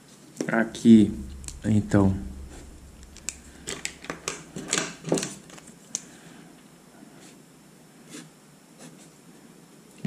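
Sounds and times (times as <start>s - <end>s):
felt-tip pen brushing on paper: 8.0s - 9.2s.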